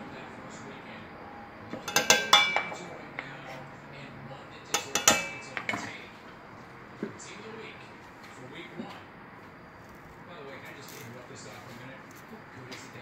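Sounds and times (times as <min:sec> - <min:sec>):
clinks on steel cooking pot: 0:01.7 - 0:02.9, 0:04.7 - 0:05.9.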